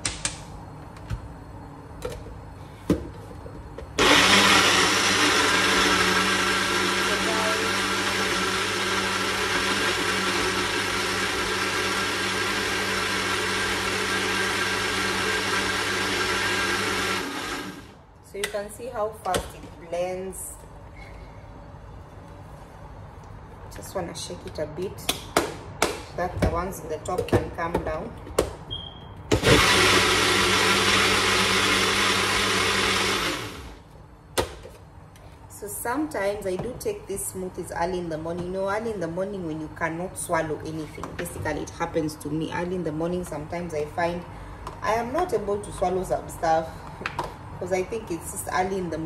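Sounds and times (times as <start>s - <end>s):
electric blender running: 4.0s - 18.0s, 29.4s - 33.8s.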